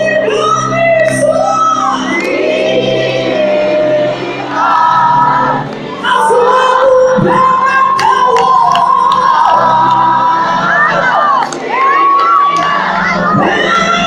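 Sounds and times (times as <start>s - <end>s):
person singing gospel: 0.0s - 14.0s
crowd shouts and whoops: 7.9s - 14.0s.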